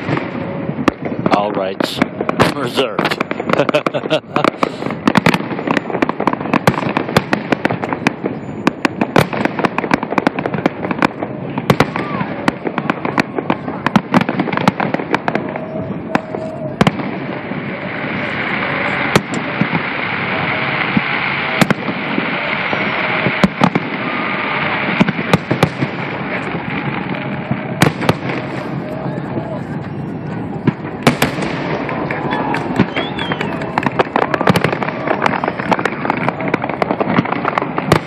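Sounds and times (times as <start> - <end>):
fireworks bangs and booms: 0.0 - 38.0
steady rushing noise: 0.0 - 38.0.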